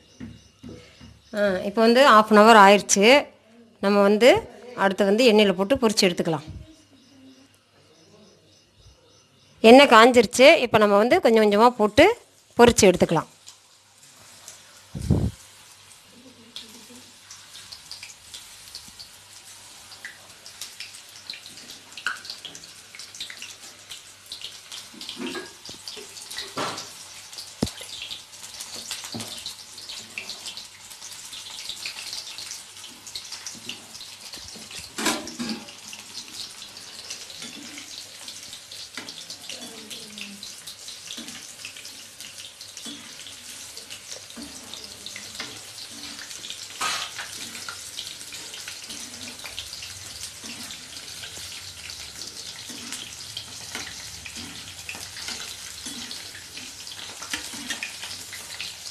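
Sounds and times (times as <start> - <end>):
food deep-frying in oil: 0.0 - 58.9
oil pops and crackles: 22.0 - 23.5, 24.3 - 29.5.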